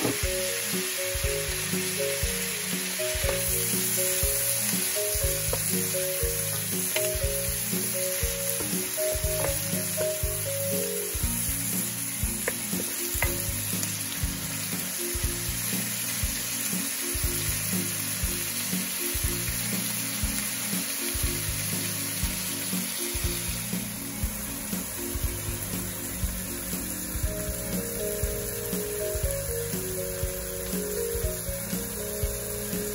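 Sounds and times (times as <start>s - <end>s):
background music: 0.0s - 32.9s
vegetables sizzling in a pot: 0.0s - 32.9s
wooden spoon knocks: 8.6s - 10.2s.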